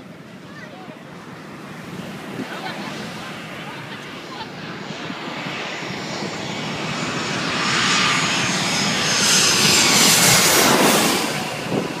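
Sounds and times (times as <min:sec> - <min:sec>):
airplane passing overhead: 0:00.0 - 0:12.0
high engine whine: 0:02.7 - 0:12.0.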